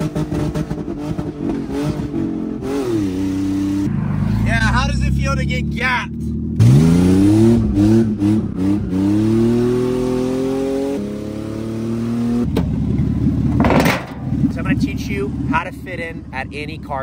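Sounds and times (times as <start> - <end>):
car engine accelerating: 0.0 - 16.4
rough rumbling noise: 12.5 - 16.4.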